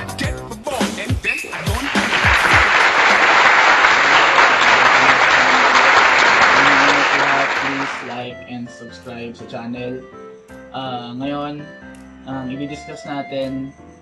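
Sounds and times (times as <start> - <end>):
background music: 0.0 - 14.0
applause: 1.5 - 8.2.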